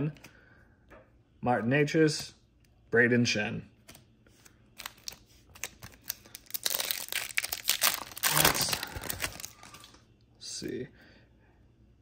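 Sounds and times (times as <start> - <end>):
foil wrapper tearing and crinkling: 4.8 - 10.0.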